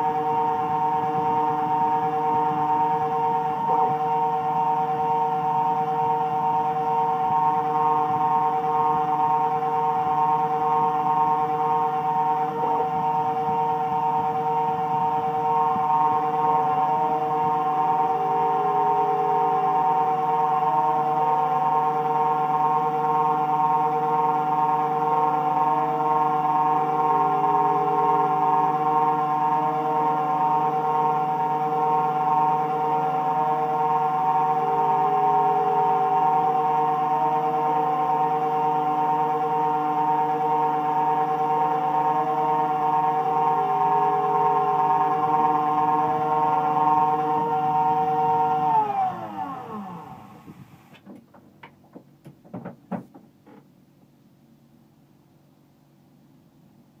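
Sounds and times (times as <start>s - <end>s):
milling machine spindle whine: 0.0s - 50.9s.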